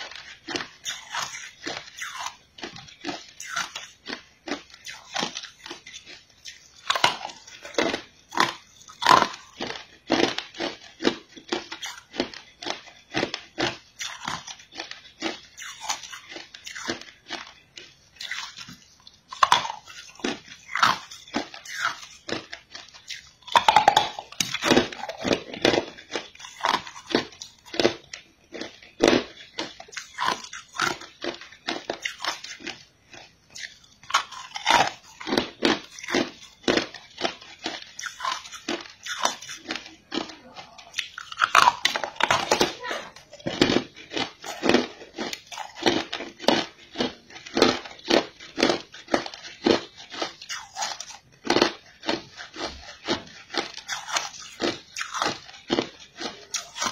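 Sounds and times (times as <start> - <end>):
teeth crunching ice: 0.0 - 56.9.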